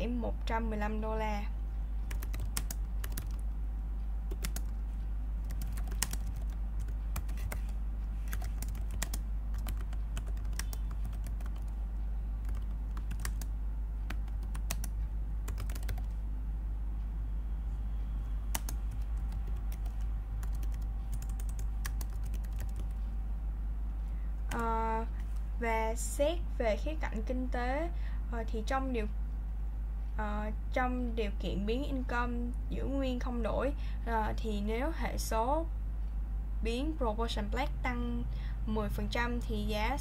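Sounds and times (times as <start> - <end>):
steady low hum: 0.0 - 40.0
computer keyboard typing: 2.1 - 3.6, 4.3 - 4.8, 5.4 - 11.8, 12.4 - 16.2, 18.5 - 23.0, 24.5 - 24.8.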